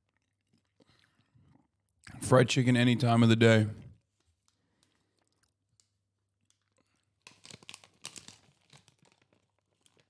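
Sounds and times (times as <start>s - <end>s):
fried chicken crunching: 4.5s - 10.0s.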